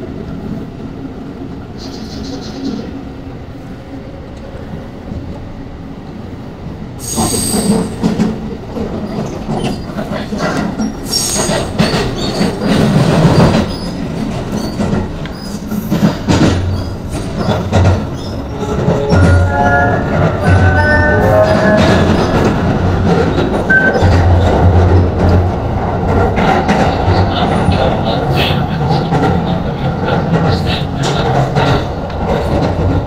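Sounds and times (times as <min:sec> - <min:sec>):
train low rumble: 0:00.0 - 0:33.0
wheels rattling over track: 0:07.0 - 0:33.0
high-pitched wheel squeals: 0:17.4 - 0:22.5.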